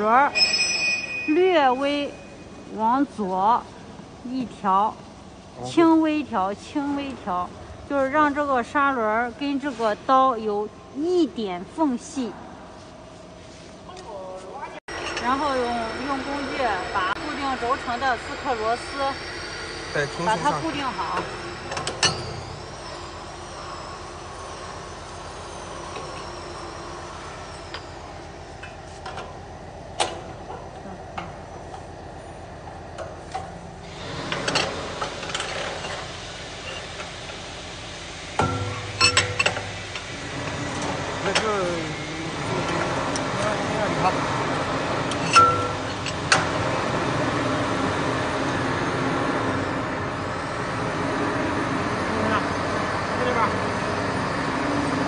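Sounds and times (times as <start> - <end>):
machine hum: 14.8 - 55.0.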